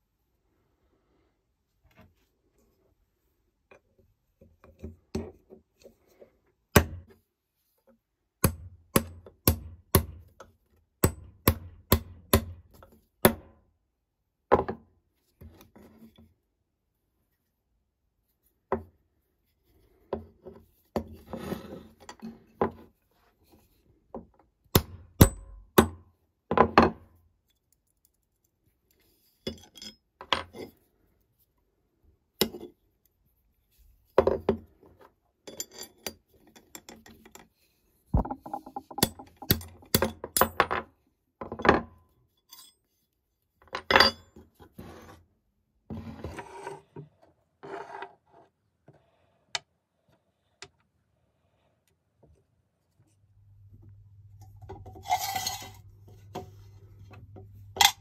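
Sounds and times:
metal scraping on workbench: 21.2s - 22.4s, 44.7s - 45.3s, 45.9s - 47.0s, 47.6s - 48.5s, 54.8s - 56.5s
metal tools clinking: 55.0s - 55.8s.

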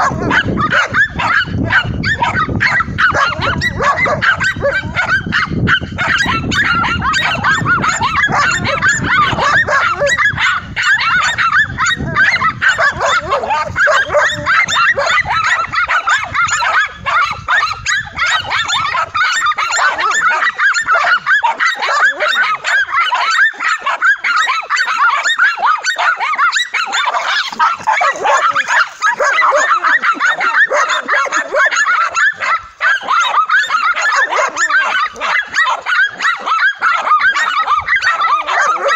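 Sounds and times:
dogs barking: 0.0s - 38.9s.

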